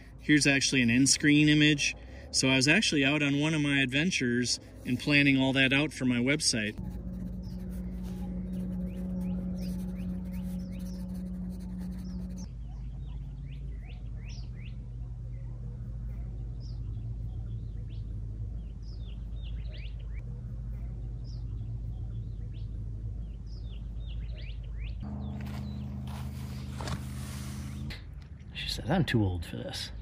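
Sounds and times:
low steady hum: 0.0 - 30.0
small birds chirping: 7.1 - 26.9.

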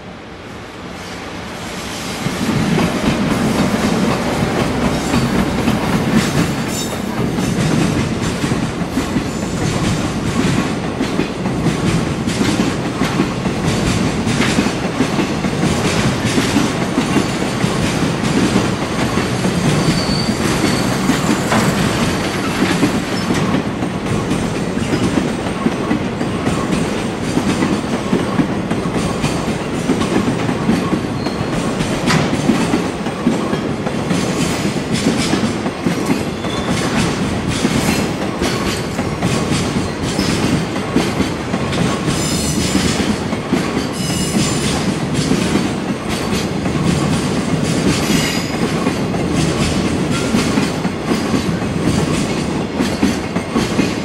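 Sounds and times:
freight train wagons clattering: 2.2 - 54.0
wheel flange squeal: 19.8 - 21.6.

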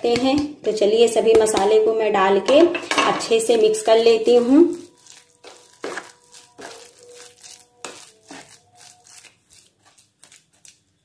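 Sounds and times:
spoon stirring batter in a bowl: 3.8 - 11.0.

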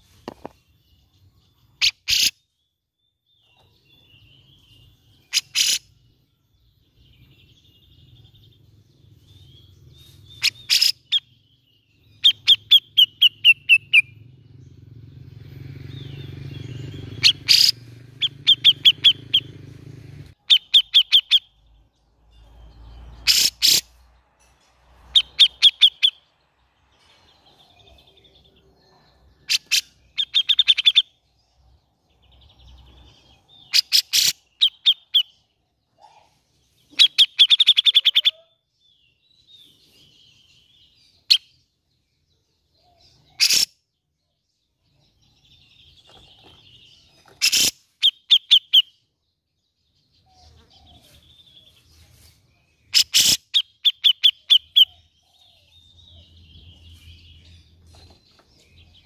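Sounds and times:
bird chattering calls: 1.8 - 2.4, 5.3 - 6.0, 10.3 - 11.4, 12.2 - 14.2, 15.9 - 21.6, 23.2 - 24.0, 25.1 - 26.2, 29.4 - 31.2, 33.5 - 35.4, 36.9 - 38.5, 43.2 - 43.8, 45.9 - 49.0, 52.9 - 55.1.

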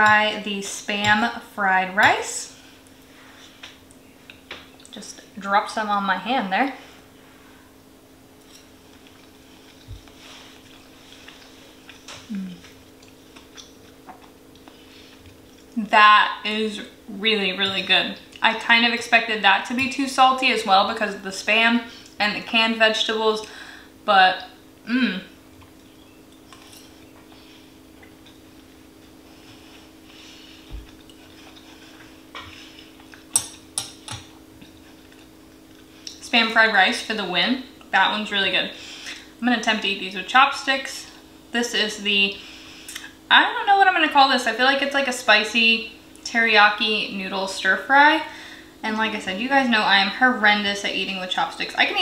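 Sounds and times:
faint hum: 0.0 - 52.0
person chewing food: 8.8 - 15.8, 25.5 - 36.2
person humming mm: 12.2 - 12.8, 24.9 - 25.4.

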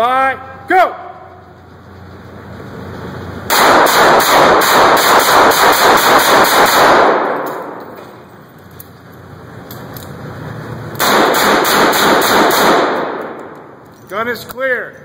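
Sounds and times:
rapid handgun fire echoing indoors: 3.5 - 8.0, 10.9 - 13.8.

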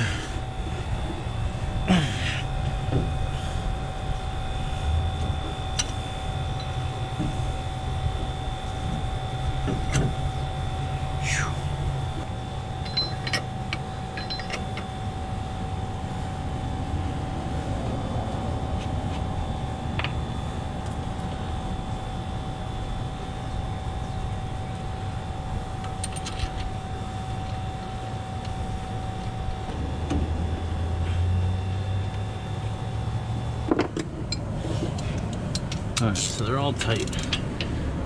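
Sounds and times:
machine hum with whine: 0.0 - 38.0.

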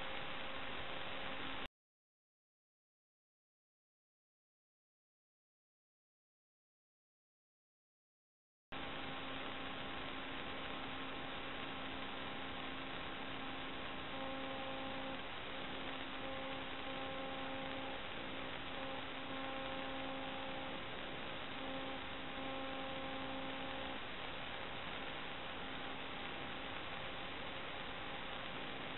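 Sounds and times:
electrical hiss and hum: 0.0 - 1.7, 8.7 - 28.9
steady electrical tones: 0.0 - 1.7, 8.8 - 28.9.

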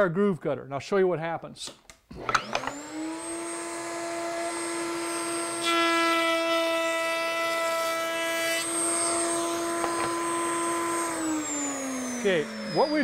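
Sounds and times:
router high whine: 2.2 - 6.5, 8.2 - 13.0
router cutting a board: 2.2 - 13.0.

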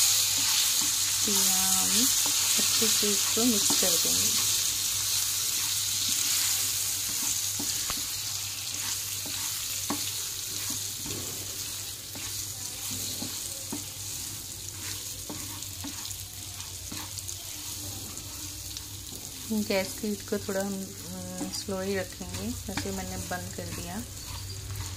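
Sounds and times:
food sizzling in oil: 0.0 - 24.9
spatula knocking and scraping pan: 2.1 - 4.4, 8.7 - 14.0, 21.4 - 24.9.

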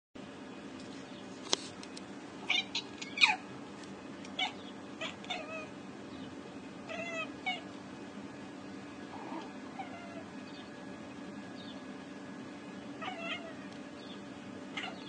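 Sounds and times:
steady low hum: 0.2 - 15.0
cat chirping and meowing: 2.4 - 3.5, 4.3 - 5.8, 6.8 - 7.7, 9.2 - 10.3, 13.0 - 15.0.

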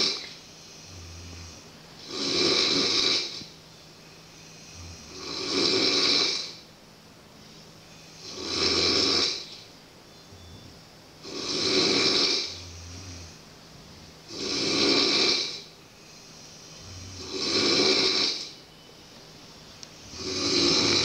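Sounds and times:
person snoring heavily: 0.0 - 3.5, 4.4 - 6.6, 8.2 - 9.6, 11.2 - 13.4, 14.2 - 18.6, 20.0 - 21.0.

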